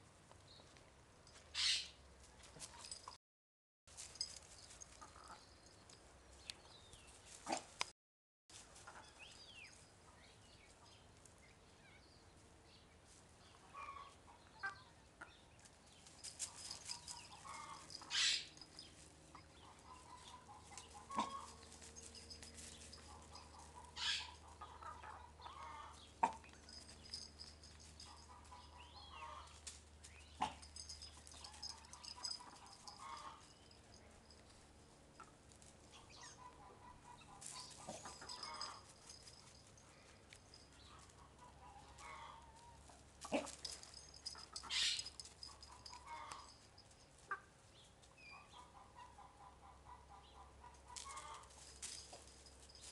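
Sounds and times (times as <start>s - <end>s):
hens clucking: 19.4s - 21.6s.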